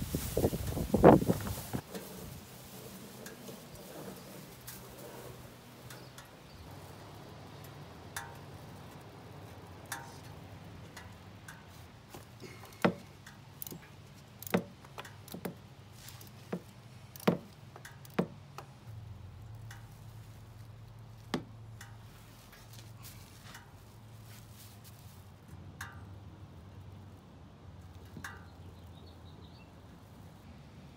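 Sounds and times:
tools clicking and knocking on metal: 9.8 - 18.8.

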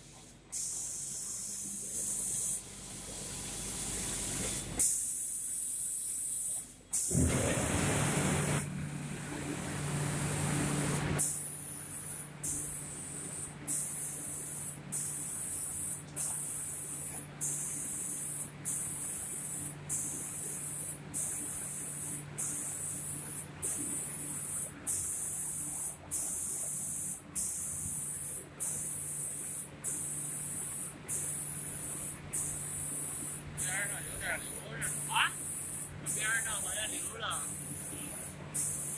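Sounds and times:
spray guns hissing: 0.1 - 8.7, 10.8 - 38.9
low machine hum: 7.1 - 11.2.

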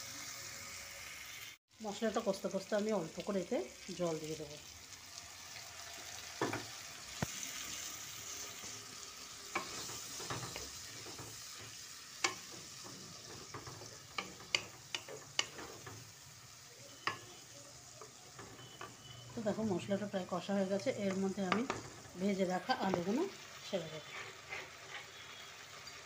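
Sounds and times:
oil sizzling: 0.0 - 26.0
spatula scraping pan: 7.4 - 20.1, 23.8 - 25.4
spatula clicking on pan: 9.5 - 16.1, 17.0 - 17.3.

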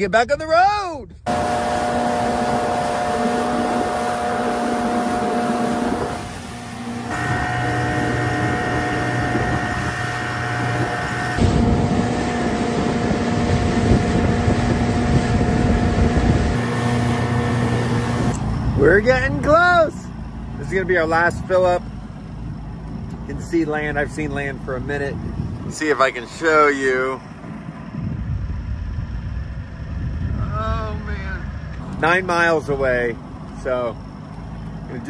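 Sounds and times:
wind noise: 0.0 - 19.2, 24.7 - 26.4, 27.2 - 31.8
two-stroke outboard motor running: 1.3 - 20.6
water noise: 1.3 - 21.0.

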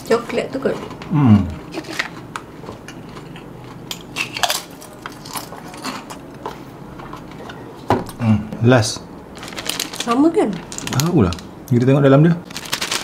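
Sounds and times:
clicks and crackles of eating snacks: 9.4 - 11.8, 12.4 - 13.0.

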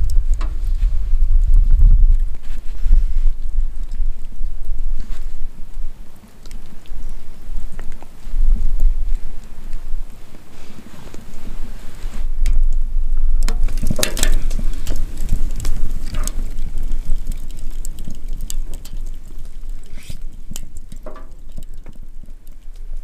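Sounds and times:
low steady rumble: 0.0 - 23.0
wood fire crackling and popping: 0.0 - 23.0
brief hisses: 19.9 - 20.2.

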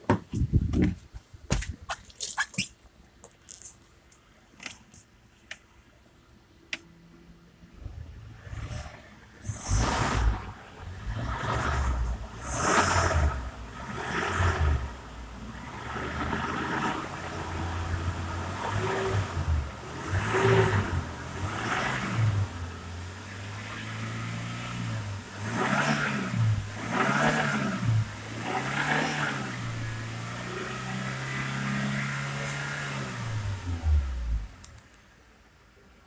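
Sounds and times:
car engine revving: 7.8 - 34.6
clicks: 34.6 - 35.1.

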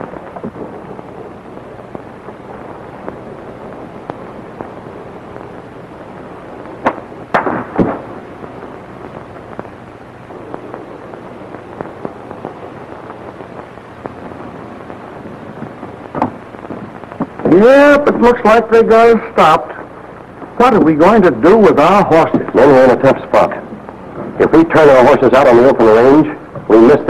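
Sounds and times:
film soundtrack hiss and crackle: 0.0 - 27.0
sharp knocks or pops: 0.2 - 1.0, 6.8 - 8.2, 10.4 - 17.5.

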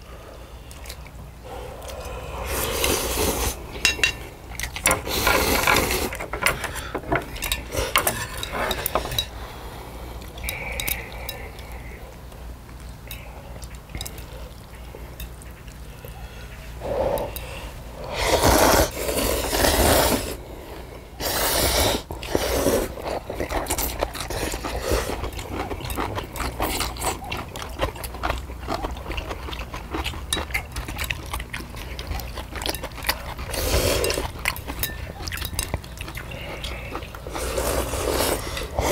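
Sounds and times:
people slurping noodles: 1.7 - 3.7, 4.9 - 6.3, 18.0 - 20.4, 21.2 - 25.3, 36.2 - 38.9
chopsticks clicking on metal plates: 3.8 - 9.4.

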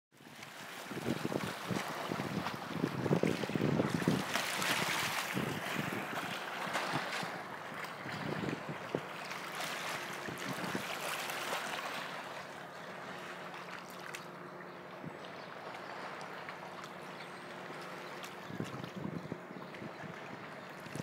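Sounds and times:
small waves lapping on rocks: 0.2 - 14.4.

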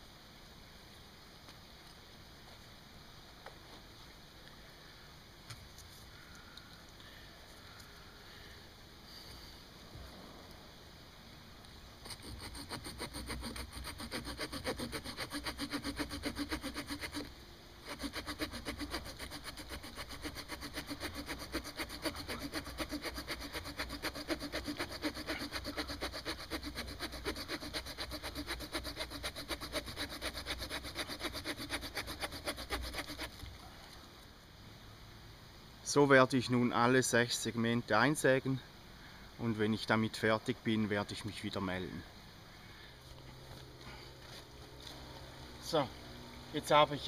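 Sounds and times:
saw blade sawing wood: 12.0 - 33.4.

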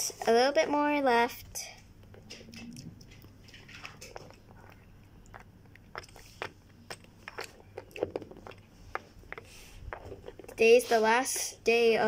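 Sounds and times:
crunchy chewing-like noises: 1.9 - 10.6.

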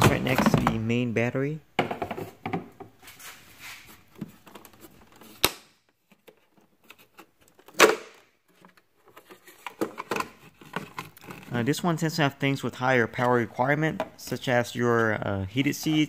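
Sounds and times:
plastic scrapes: 8.5 - 11.8.

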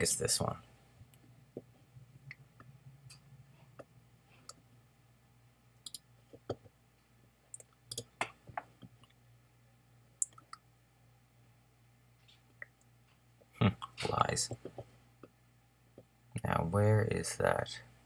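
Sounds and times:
faint low hum: 0.0 - 18.0
computer mouse clicks: 5.8 - 6.6, 7.6 - 8.4.

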